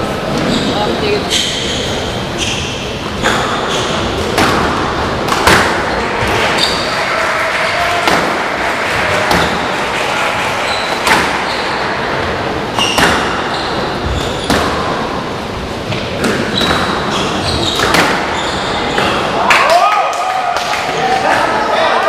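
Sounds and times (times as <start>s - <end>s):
shoes squeaking on wooden floor: 0.3s - 4.2s, 5.8s - 7.0s, 16.5s - 19.2s
squash ball cracking off walls: 3.2s - 6.8s, 7.8s - 10.0s, 10.8s - 11.8s, 12.7s - 13.8s, 14.4s - 15.0s, 17.7s - 19.2s.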